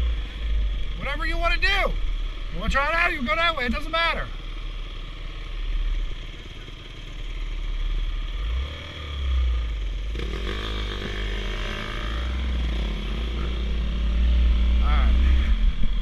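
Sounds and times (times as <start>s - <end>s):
dirt bike engines idling: 0.0s - 16.0s
dirt bike engine revving: 7.8s - 16.0s.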